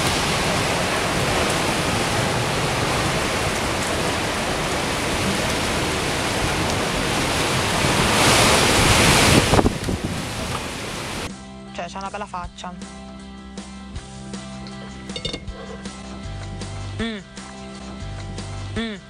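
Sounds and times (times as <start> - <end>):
windstorm with heavy rain: 0.0 - 11.3.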